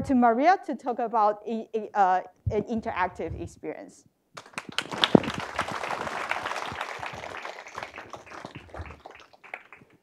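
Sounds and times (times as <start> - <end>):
audience applauding: 4.4 - 10.0.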